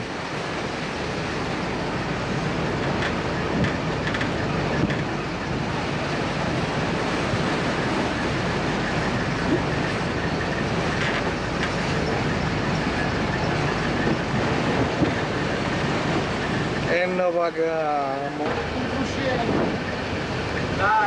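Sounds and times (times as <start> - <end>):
wind on microphone: 0.0 - 16.9, 18.3 - 21.0
low steady rumble: 0.0 - 21.0
waves breaking: 0.0 - 21.0.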